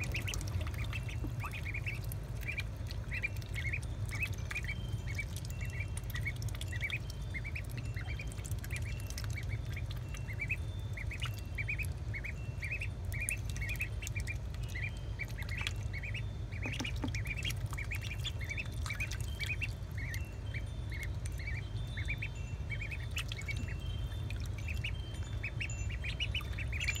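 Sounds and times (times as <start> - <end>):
water splashing: 0.0 - 11.8
ducklings peeping: 0.0 - 27.0
low hum: 0.0 - 27.0.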